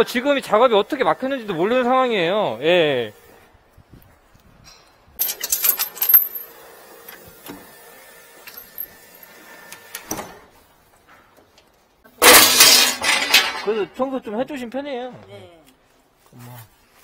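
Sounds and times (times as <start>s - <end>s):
loud metallic clatter: 12.2s - 13.9s.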